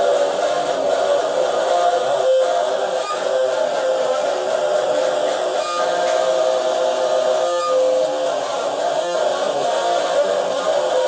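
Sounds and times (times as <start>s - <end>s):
electric guitar chords: 0.0s - 11.0s.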